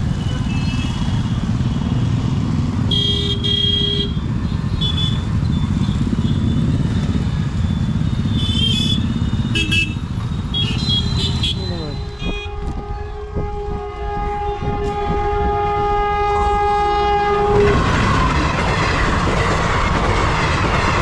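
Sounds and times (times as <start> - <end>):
motorcycles and cars passing: 0.0 - 12.9
horn honks: 2.9 - 4.2, 8.3 - 17.8.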